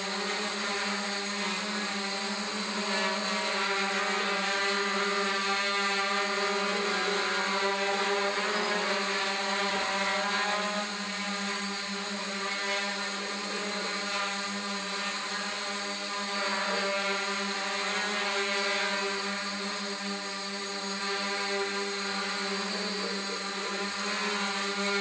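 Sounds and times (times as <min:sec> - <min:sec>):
drone hovering hum: 0:00.0 - 0:25.0.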